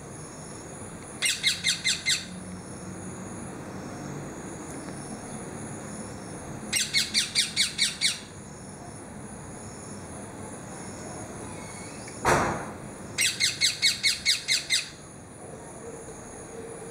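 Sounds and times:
parakeet begging calls: 1.2s - 2.3s, 6.7s - 8.3s, 13.2s - 15.0s.

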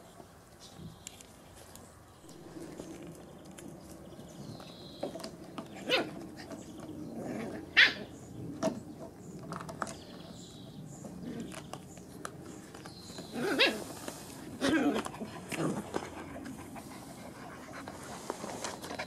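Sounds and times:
puppies yipping: 7.7s - 8.2s, 13.3s - 15.6s.

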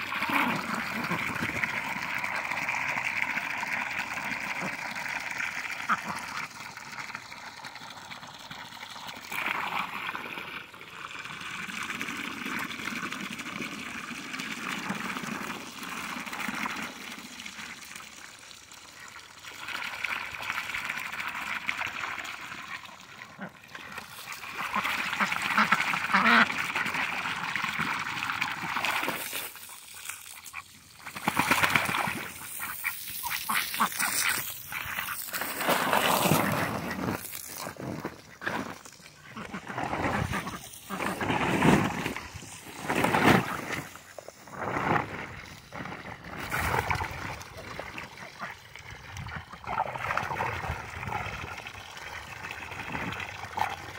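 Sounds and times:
water trickling and splashing: 0.0s - 53.9s
ducks quacking: 24.5s - 26.8s, 32.0s - 35.3s, 39.2s - 41.3s.

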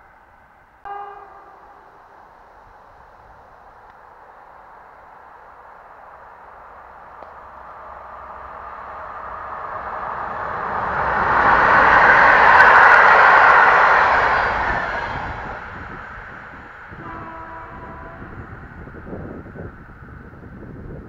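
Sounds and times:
electric train passing: 0.0s - 21.0s
brief steady pitched tone: 0.9s - 2.8s.

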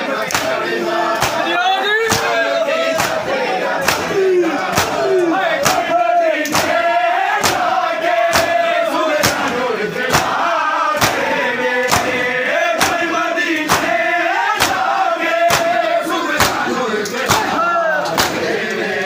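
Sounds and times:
men chanting: 0.0s - 19.0s
hands slapping chests: 0.2s - 0.6s, 1.2s - 1.4s, 2.1s - 2.4s, 3.0s - 6.8s, 7.4s - 10.4s, 11.0s - 14.0s, 14.6s - 18.8s.

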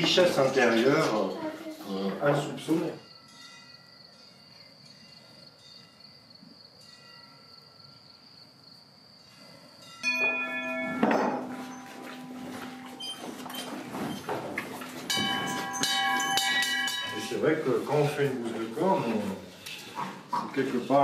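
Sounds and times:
cowbell clanging: 10.0s - 13.5s, 15.0s - 17.6s.

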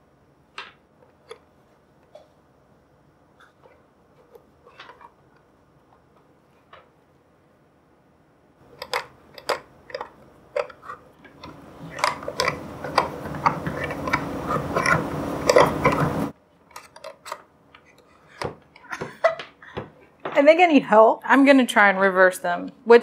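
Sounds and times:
low steady hum: 0.0s - 23.0s
mixer beaters clicking and clattering: 8.7s - 19.6s.

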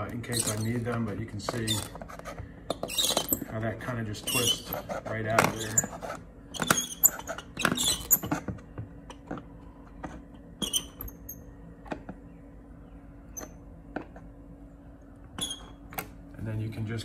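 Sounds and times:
trim strip squeaking and clicking: 0.0s - 3.5s, 4.2s - 8.4s, 15.4s - 16.1s.

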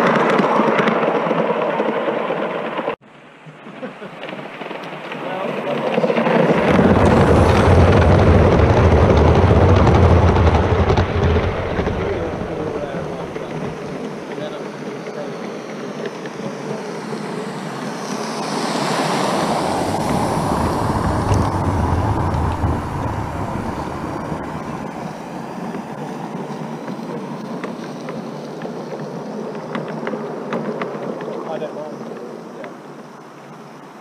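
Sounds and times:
model train running past: 4.2s - 29.4s.

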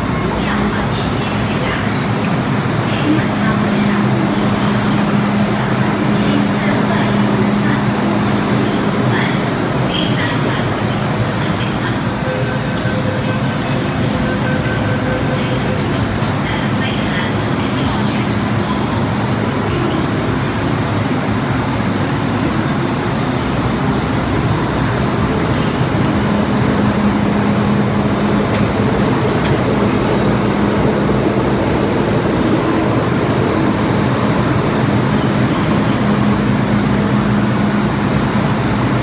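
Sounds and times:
train wheels rumbling: 0.0s - 39.0s.

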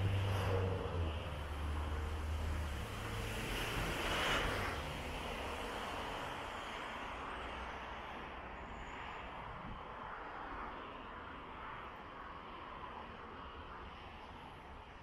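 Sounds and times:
passing vehicle rushing: 0.0s - 6.4s.

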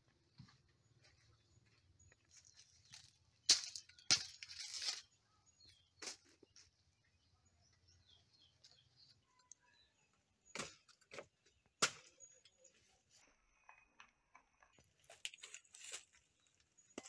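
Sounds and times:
faint bird chirps: 0.4s - 10.9s
banana leaves rustling: 15.1s - 16.3s.

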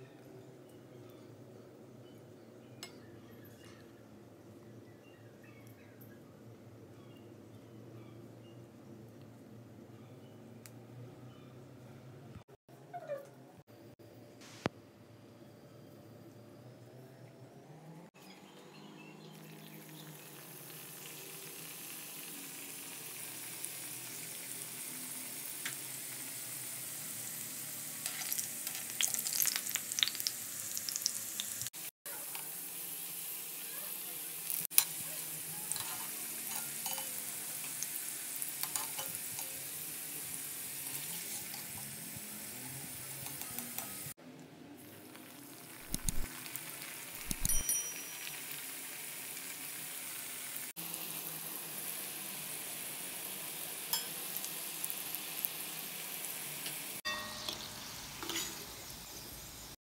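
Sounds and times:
deep-frying sizzle in hot oil: 18.7s - 44.2s, 44.8s - 59.8s.

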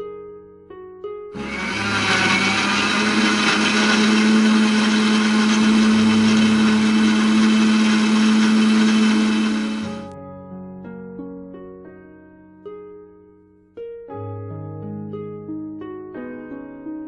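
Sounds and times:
electric blender running: 1.4s - 10.1s.

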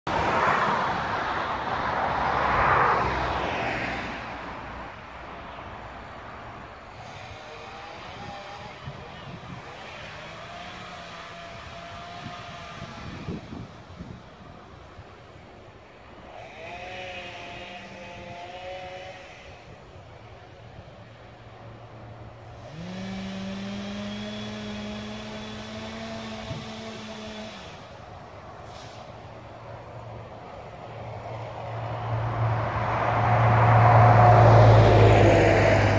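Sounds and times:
steady background noise: 0.1s - 35.9s
vehicle passing: 0.1s - 35.9s
engine idling and revving: 6.5s - 14.0s, 16.2s - 20.3s, 21.4s - 35.9s.

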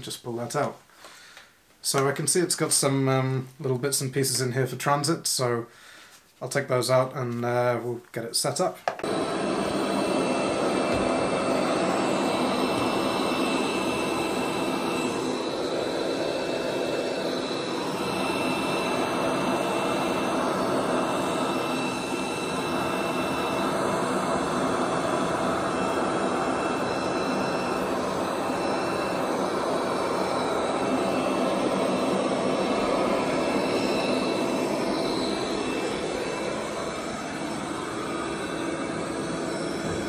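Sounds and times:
high steady whine: 8.8s - 40.0s
robot vacuum cleaner whirring: 9.0s - 40.0s.

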